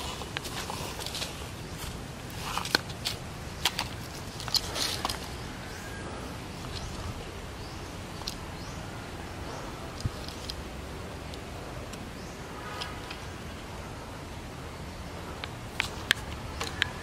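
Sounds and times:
twigs snapping: 0.0s - 5.4s
footsteps on dry leaves: 0.0s - 7.8s
low outdoor rumble: 0.0s - 17.0s.

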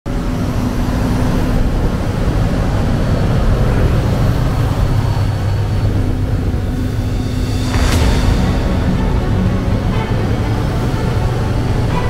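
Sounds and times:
tractor diesel engines running: 0.1s - 7.2s.

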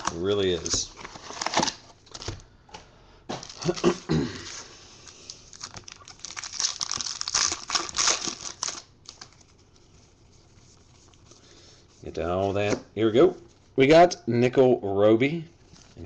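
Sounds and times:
foil packs crinkling: 3.3s - 9.8s.

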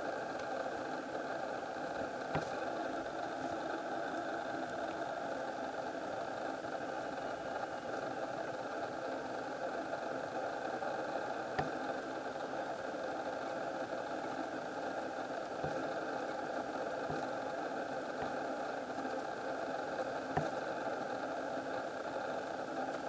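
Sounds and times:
mechanical hum: 0.0s - 23.0s.

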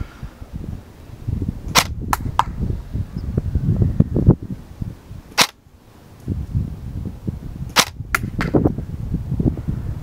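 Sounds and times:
wind buffeting microphone: 0.0s - 5.4s, 6.0s - 10.0s
airsoft rifle shots: 1.7s - 2.5s, 5.3s - 5.6s, 7.8s - 8.6s.

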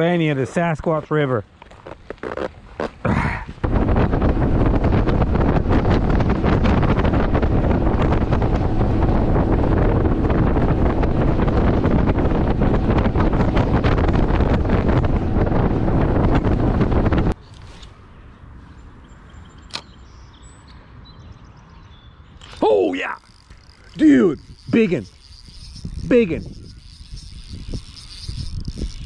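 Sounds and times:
wind buffeting microphone: 3.1s - 17.4s, 21.0s - 29.0s
outboard motor: 3.7s - 17.4s, 22.4s - 29.0s.

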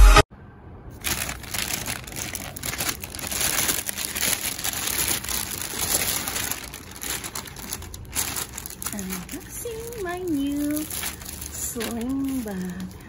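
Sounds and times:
plastic bag crinkling and rustling: 0.9s - 13.0s.

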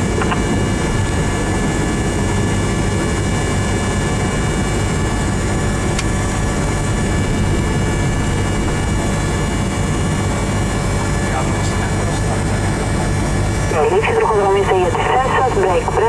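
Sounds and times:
airplane engine and propeller: 0.0s - 16.0s.

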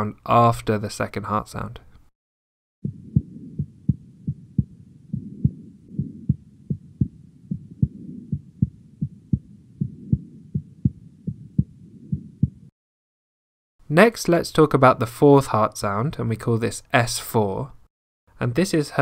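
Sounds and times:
heartbeat thumps: 2.8s - 12.7s.

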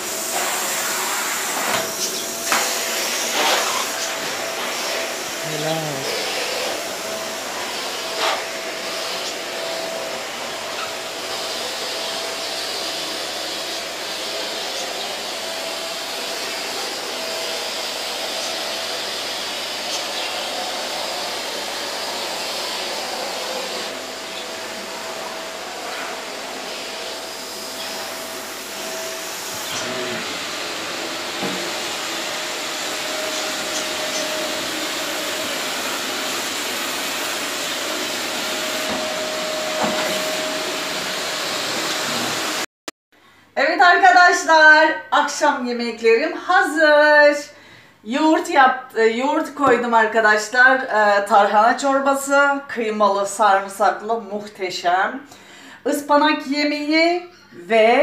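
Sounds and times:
vacuum cleaner running: 0.0s - 42.7s.

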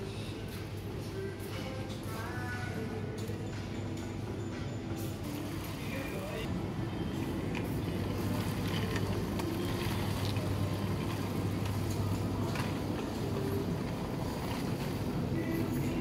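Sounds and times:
shopping trolley rolling on tiles: 5.0s - 16.0s.

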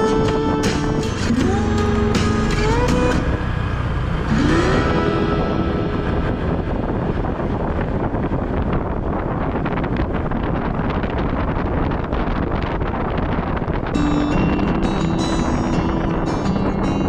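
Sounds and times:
motorcycle engine and road noise: 0.0s - 17.0s
wind noise on microphone: 0.0s - 17.0s.

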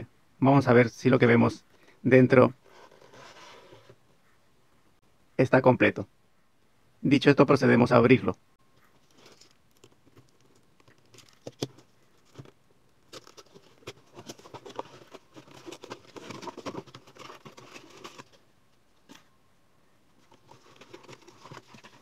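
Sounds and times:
cardboard rustling and scraping: 2.5s - 4.1s, 8.8s - 18.4s, 20.1s - 22.0s.

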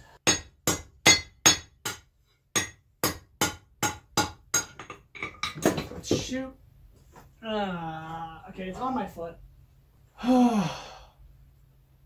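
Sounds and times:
hammer striking metal on anvil: 0.2s - 5.0s.

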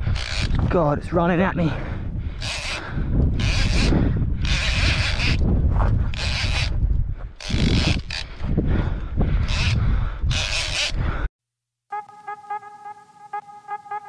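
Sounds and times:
wind rumble on microphone: 0.0s - 11.3s
fishing reel whirring and ratcheting: 2.4s - 2.8s, 3.4s - 5.4s, 6.1s - 6.7s, 9.5s - 11.0s.

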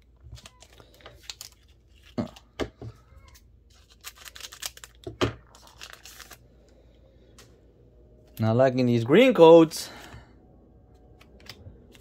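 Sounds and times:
foil wrapper crinkling and tearing: 0.2s - 2.6s, 3.2s - 6.4s.

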